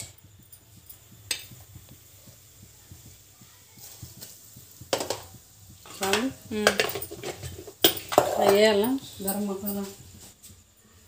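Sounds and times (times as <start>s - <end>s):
metal spoon clinking on pots: 0.0s - 1.9s, 3.9s - 10.2s.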